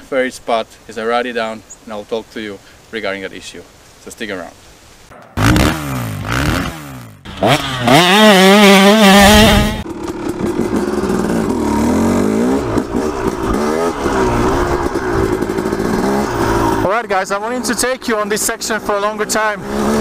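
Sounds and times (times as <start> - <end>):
dirt bike engine: 5.1 - 20.0.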